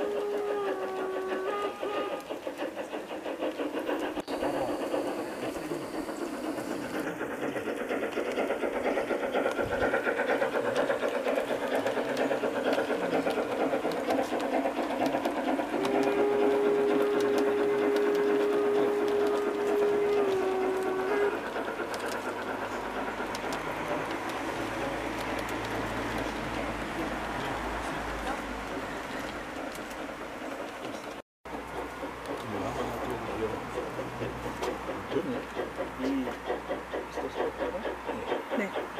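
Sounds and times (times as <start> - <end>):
steam whistle: 0.0 - 2.3, 15.7 - 21.5
model steam locomotive chuffing: 0.0 - 38.9
wheels clattering on track: 0.0 - 38.9.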